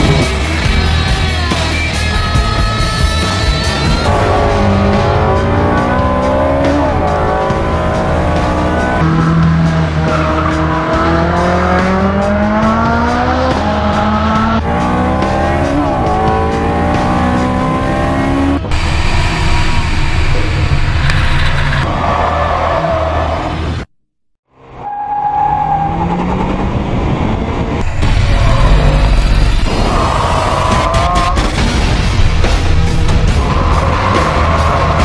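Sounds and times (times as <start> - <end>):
rough car engine: 0.0 - 23.9, 24.5 - 35.0
sports car engine at hard throttle: 4.0 - 21.9, 26.2 - 35.0.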